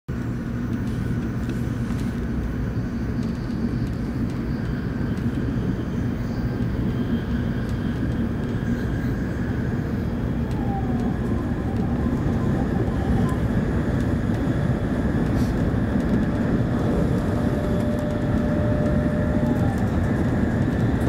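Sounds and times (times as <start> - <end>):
train cabin low rumble: 0.1 - 21.0
faint steady whine: 16.9 - 20.4.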